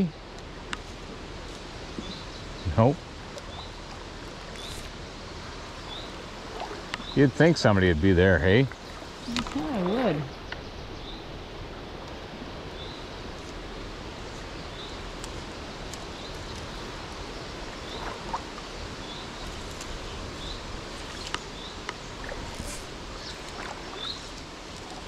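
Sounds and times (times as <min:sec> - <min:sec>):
stream running over stones: 0:00.0 - 0:25.0.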